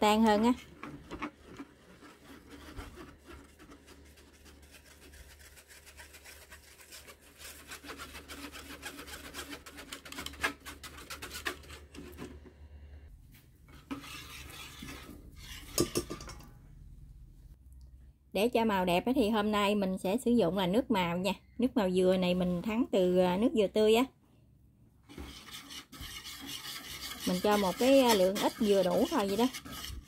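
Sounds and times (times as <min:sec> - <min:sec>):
whisk scraping metal strainer: 0:00.0 - 0:12.3, 0:13.7 - 0:16.5, 0:25.1 - 0:30.0.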